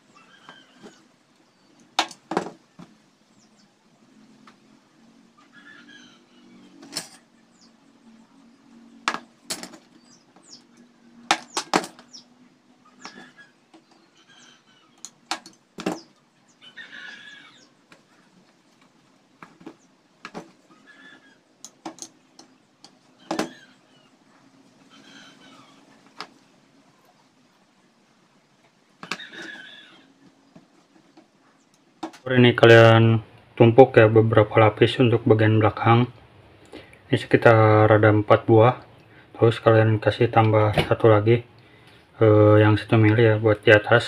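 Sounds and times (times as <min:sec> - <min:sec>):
plastic pieces clicking and tapping: 0:15.0 - 0:16.0.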